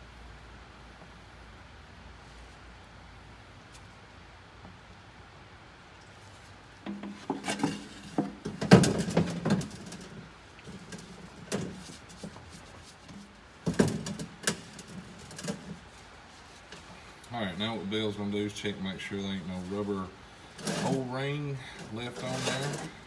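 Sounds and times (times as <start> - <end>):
hand tools clanking on metal: 21.8 - 23.0.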